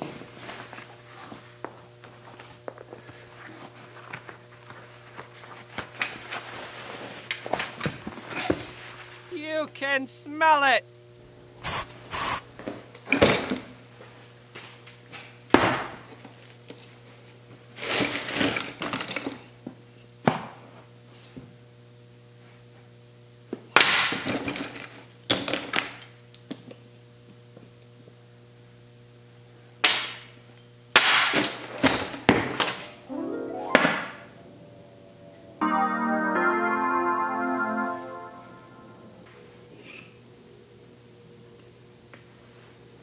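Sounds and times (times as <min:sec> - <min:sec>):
low steady hum: 0:33.0 - 0:41.8.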